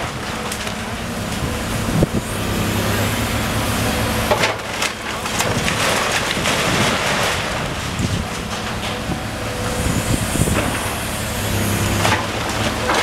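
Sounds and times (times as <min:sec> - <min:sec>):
diesel engine droning: 0:00.0 - 0:13.0
debris crumbling and falling: 0:04.3 - 0:09.2.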